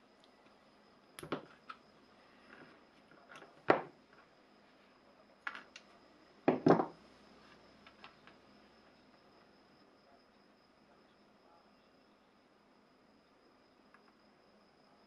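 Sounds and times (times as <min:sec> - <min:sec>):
parts set down on cutting mat: 0:03.3 - 0:04.3, 0:06.5 - 0:07.0.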